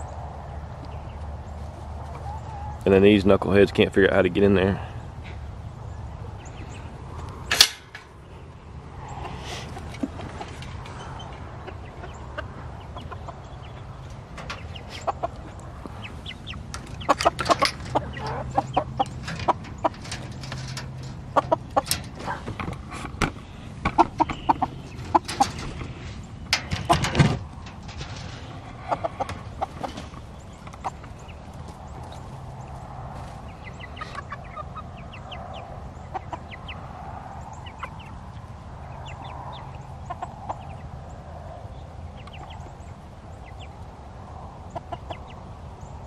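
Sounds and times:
chickens clucking: 0.0 - 46.0
metal coop door latch clinking: 7.5 - 8.1, 14.2 - 14.8, 16.6 - 22.4, 23.9 - 25.9, 26.5 - 29.5.

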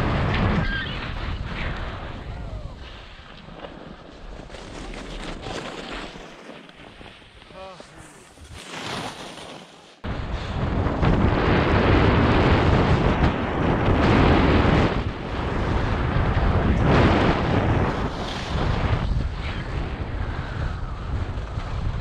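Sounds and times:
wind buffeting microphone: 0.0 - 5.9, 10.0 - 22.0
skis scraping over snow: 2.8 - 10.5.

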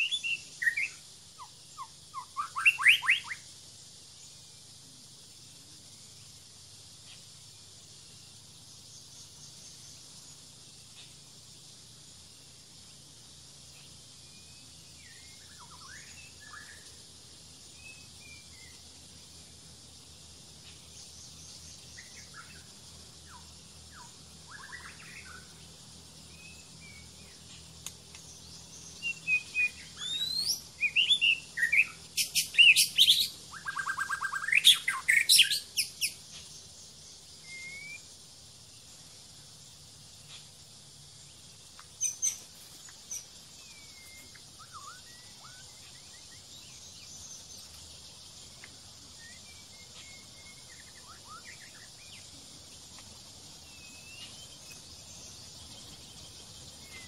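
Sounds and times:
bird singing whistles and trills: 0.0 - 3.5, 13.8 - 17.0, 17.7 - 18.8, 20.7 - 27.5, 28.3 - 36.6, 37.3 - 38.2, 41.9 - 47.7, 48.4 - 52.3, 53.6 - 57.0
insects hissing: 0.0 - 57.0.

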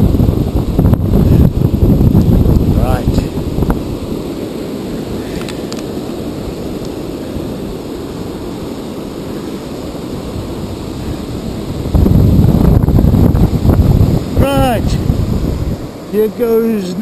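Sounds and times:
waves washing onto beach: 0.0 - 17.0
wind rumbling on microphone: 0.0 - 17.0.

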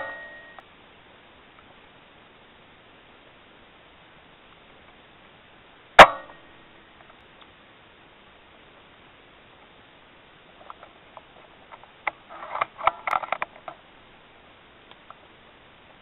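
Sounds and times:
air rifle clicks and rattles: 10.6 - 13.8.

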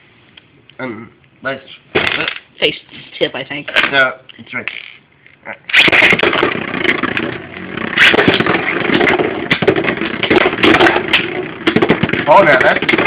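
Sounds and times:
spinning tops clashing: 5.7 - 13.0
spinning tops whirring: 5.7 - 13.0.

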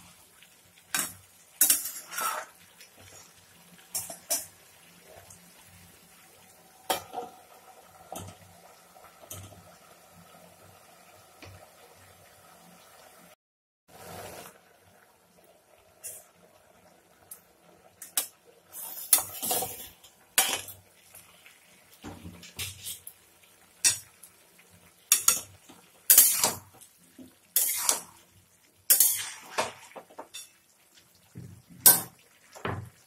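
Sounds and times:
metal spatula scraping a pan: 1.0 - 3.3, 18.7 - 20.7, 26.1 - 26.7, 27.6 - 28.2, 28.9 - 30.5.

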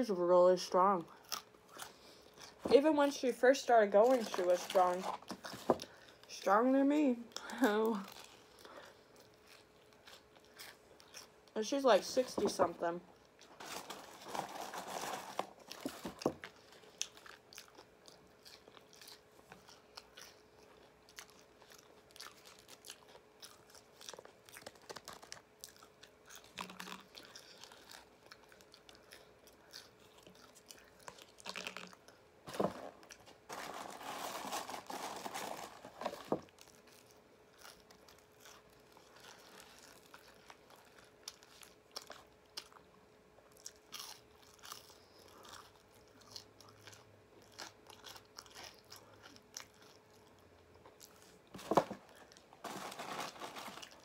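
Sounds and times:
person chewing and crunching food: 0.6 - 54.0
paper food box handled: 52.6 - 54.0.

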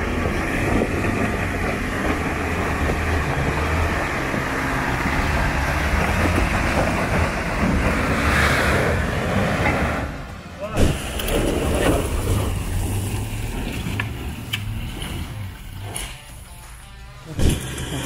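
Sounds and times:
pickup engine running: 0.0 - 18.0
stones crunching under tyres: 10.8 - 18.0.

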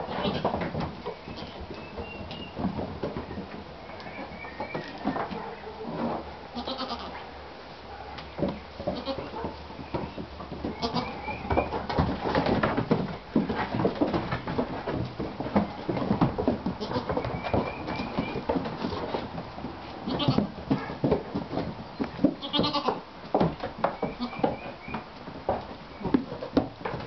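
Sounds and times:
hooves tapping on wooden floorboards: 0.1 - 6.3, 7.9 - 27.0
goats bleating: 6.6 - 7.2, 8.9 - 9.3, 10.7 - 11.3, 16.8 - 17.2, 20.0 - 20.5, 22.4 - 23.0, 24.2 - 24.5.

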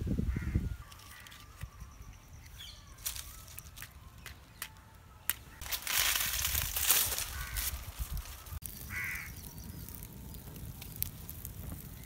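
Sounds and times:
fire crackling: 3.2 - 12.0.

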